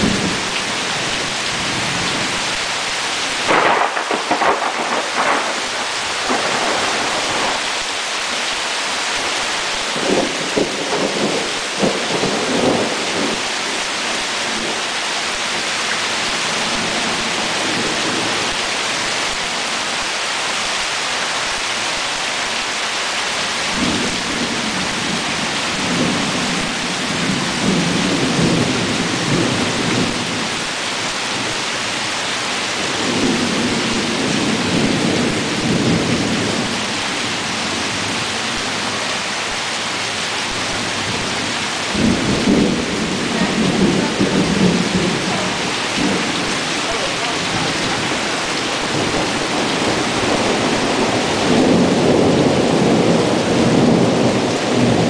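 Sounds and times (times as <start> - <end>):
thunder rumbling: 0.0 - 2.5, 3.3 - 8.0, 9.6 - 15.7, 23.7 - 30.7, 32.8 - 39.1, 40.5 - 55.0
heavy rain hissing: 0.0 - 55.0.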